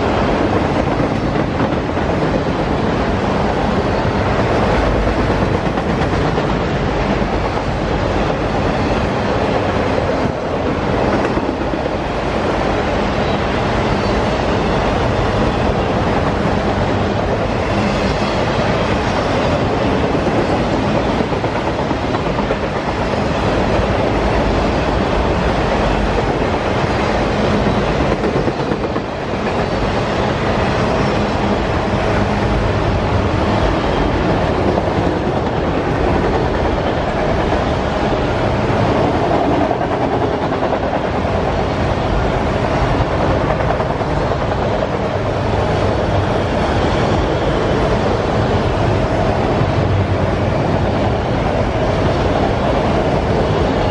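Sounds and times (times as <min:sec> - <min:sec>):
clickety-clack over rail joints: 0:00.0 - 0:53.9
train wheels rumbling on rail: 0:00.0 - 0:53.9.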